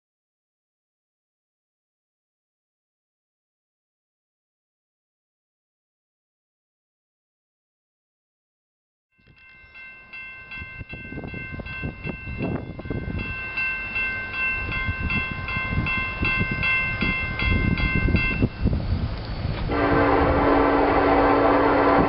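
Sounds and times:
crossing bell ringing: 9.1s - 18.7s
low train rumble: 9.2s - 22.0s
locomotive horn blowing: 19.7s - 22.0s.

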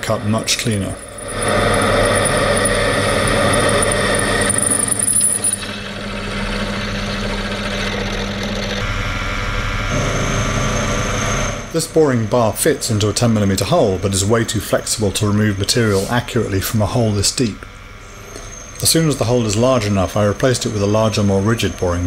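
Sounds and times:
lathe drilling into steel: 0.0s - 11.8s.

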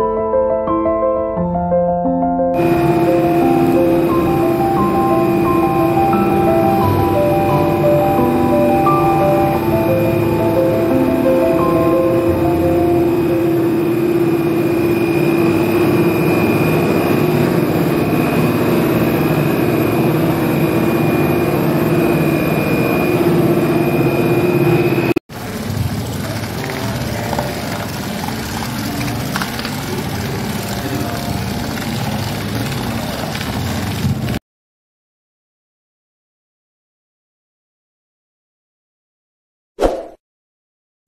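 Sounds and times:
cable car machinery rumble: 2.6s - 25.1s
rough steady machine noise: 2.6s - 34.1s.

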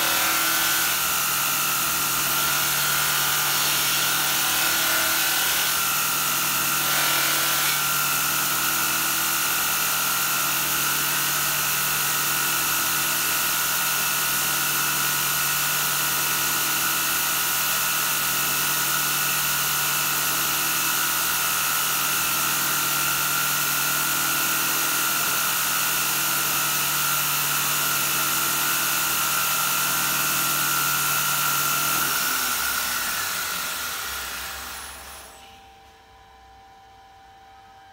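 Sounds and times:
belt grinder whining: 0.0s - 16.8s, 17.4s - 35.5s
grinder spinning down: 22.6s - 35.5s.

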